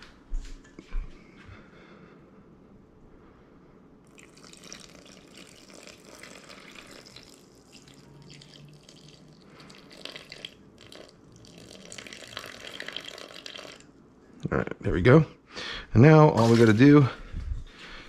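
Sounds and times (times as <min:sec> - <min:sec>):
water pouring into a bowl: 0:04.1 - 0:13.9.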